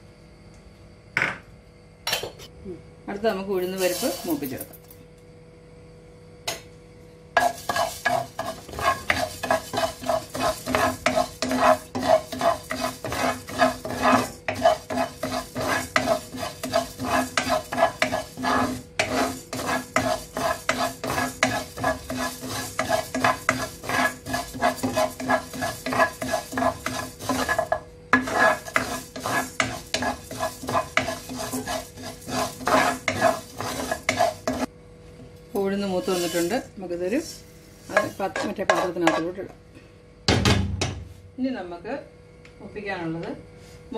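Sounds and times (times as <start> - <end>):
spatula scraping a dry pan: 3.7 - 4.5, 7.4 - 34.7, 35.8 - 36.7, 37.7 - 39.4
grains rustling: 3.8 - 4.5.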